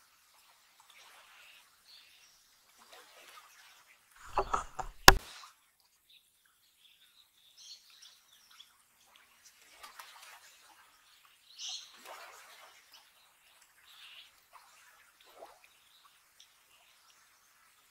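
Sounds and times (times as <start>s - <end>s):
knocks and sharp click: 4.2s - 5.2s.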